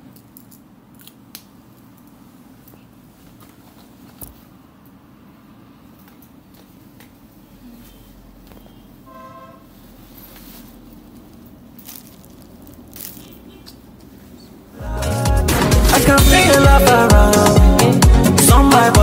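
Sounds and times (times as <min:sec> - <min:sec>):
short pitched toot: 0:08.6 - 0:09.7
handling clicks and rustles: 0:10.0 - 0:14.4.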